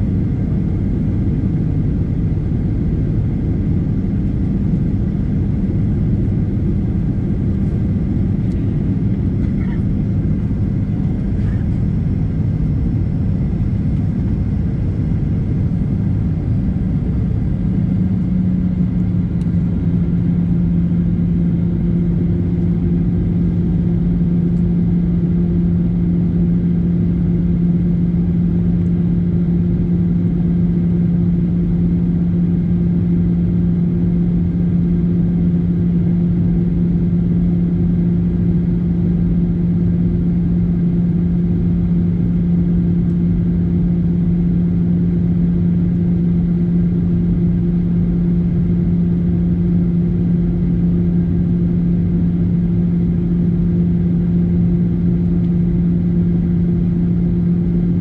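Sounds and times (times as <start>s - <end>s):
jet engine rumble in cabin: 0.0s - 58.0s.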